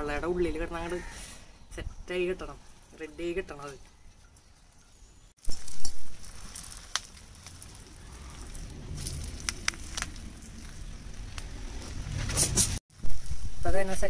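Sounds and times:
fire crackles: 5.3s - 14.0s
leaves rustling and scraping pan: 5.4s - 14.0s.

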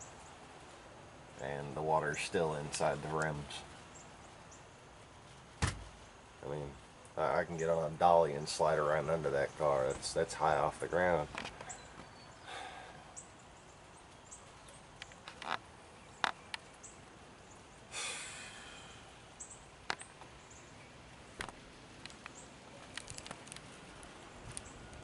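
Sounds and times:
faint outdoor ambience: 0.0s - 25.0s
steps on wooden deck: 5.5s - 6.0s
breathy exhale: 12.4s - 13.2s, 17.9s - 19.2s.

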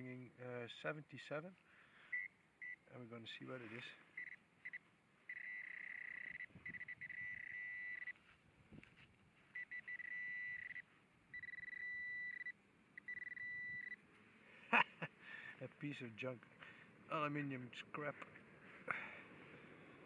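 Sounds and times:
metal detector buzzing: 4.2s - 8.2s, 9.6s - 14.0s.

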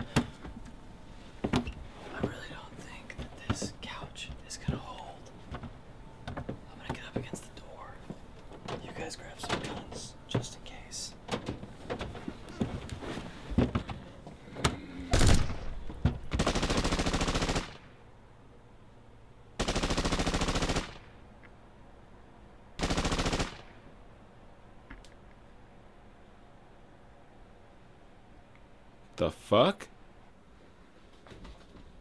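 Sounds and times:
automatic gunfire: 15.1s - 15.7s, 16.4s - 18.0s, 19.6s - 21.2s, 22.8s - 23.8s.

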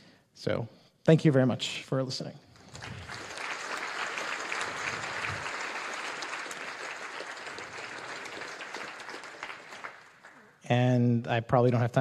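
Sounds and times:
audience applauding: 2.6s - 10.6s.

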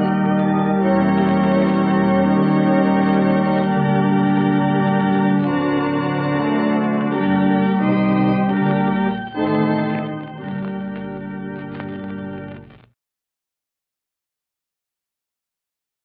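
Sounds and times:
organ playing sustained chords: 0.0s - 12.8s.

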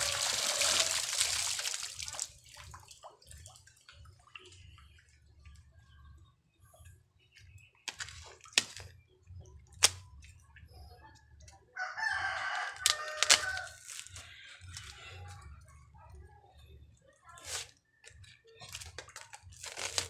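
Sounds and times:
rooster crowing: 0.0s - 1.0s, 11.8s - 13.8s.

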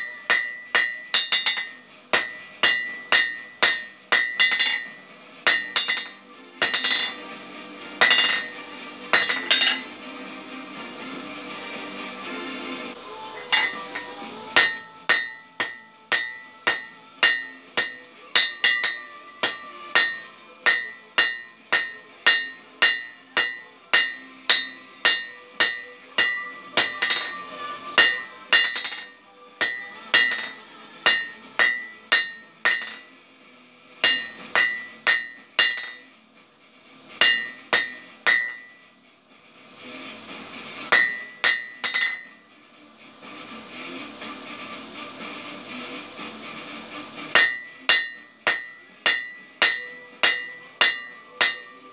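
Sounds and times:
anvil ringing: 0.0s - 7.3s, 8.0s - 10.0s, 13.3s - 33.1s, 34.0s - 36.1s, 37.2s - 38.9s, 40.8s - 42.4s, 46.8s - 51.9s
hammer striking on anvil: 0.0s - 10.0s, 13.3s - 33.2s, 34.0s - 36.1s, 37.2s - 38.9s, 40.8s - 42.4s, 45.2s - 51.9s.

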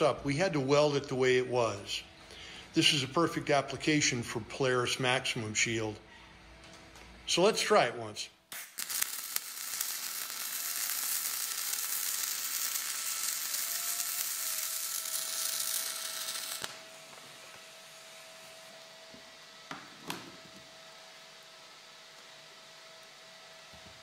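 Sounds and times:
arc welding sizzling hiss: 8.5s - 24.0s.

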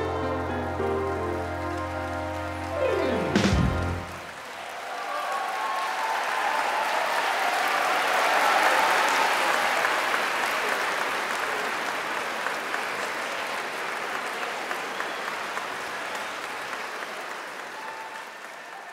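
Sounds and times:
audience applauding: 0.0s - 18.9s.

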